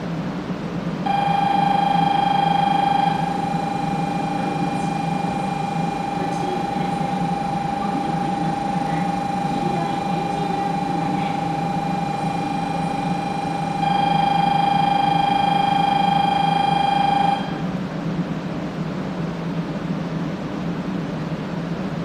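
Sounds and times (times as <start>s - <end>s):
low hum of standing train: 0.0s - 22.0s
platform departure buzzer tone: 1.0s - 17.7s.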